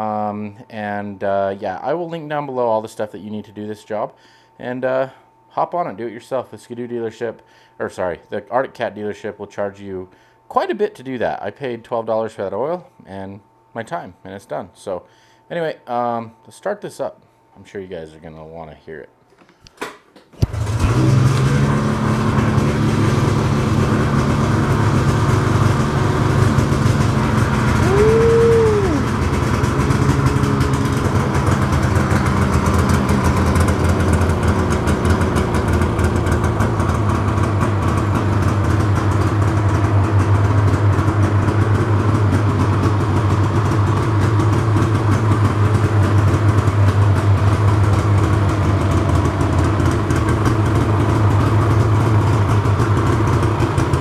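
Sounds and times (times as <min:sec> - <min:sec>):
snowmobile engine idling: 0:20.4 - 0:54.0.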